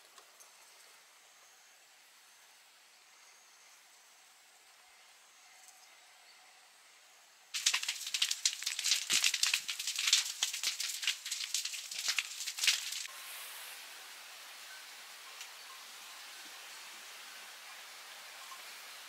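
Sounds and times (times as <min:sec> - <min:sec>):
soft steady hiss: 0:00.0 - 0:19.0
dense crackling and rustling: 0:07.6 - 0:13.1.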